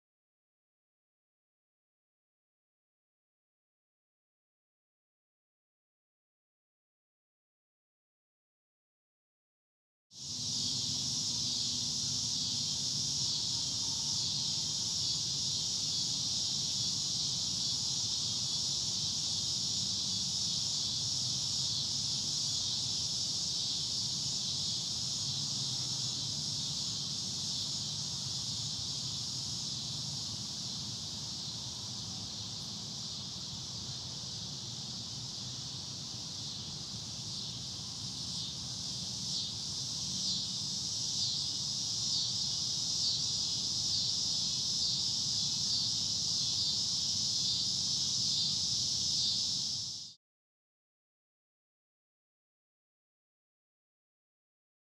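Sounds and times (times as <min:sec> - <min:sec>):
cicadas buzzing: 0:10.2 - 0:50.2.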